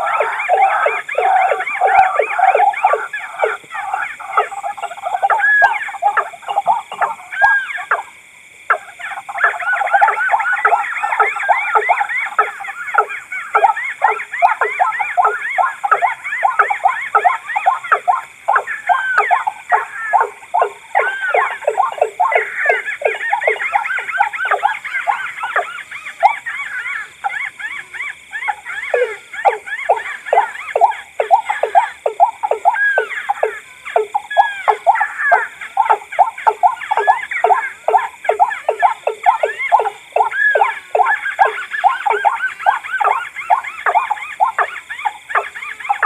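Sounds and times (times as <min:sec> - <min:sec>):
repeated bird calls: 0:00.0 - 0:46.0.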